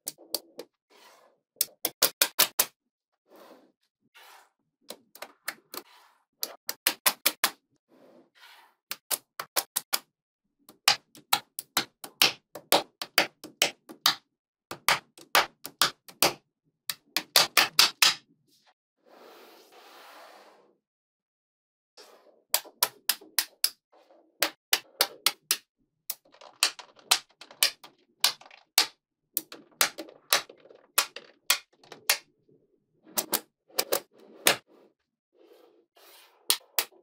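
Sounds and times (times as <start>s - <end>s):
magnetic balls clicking together: 24.4s - 32.2s.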